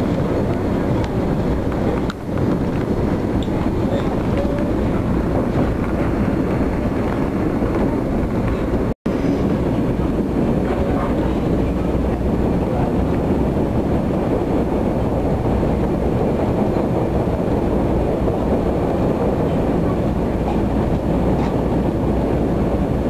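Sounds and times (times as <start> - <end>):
passenger train rumbling: 0.0 - 23.0.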